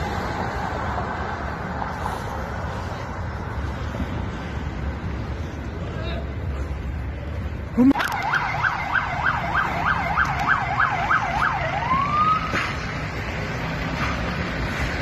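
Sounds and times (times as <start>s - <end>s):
street traffic: 0.0s - 15.0s
police siren yelping and wailing: 7.8s - 12.6s.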